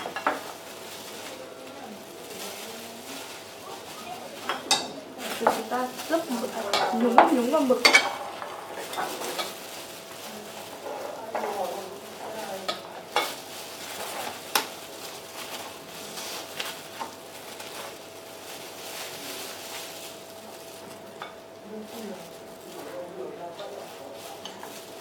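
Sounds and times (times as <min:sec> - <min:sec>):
chopsticks clinking against bowls: 0:04.4 - 0:05.7.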